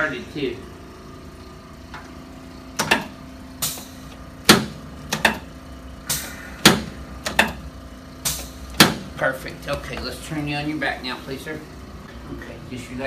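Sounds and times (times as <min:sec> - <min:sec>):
steady low hum: 0:00.0 - 0:13.0
sharp joint knocks and clicks: 0:04.5 - 0:05.4.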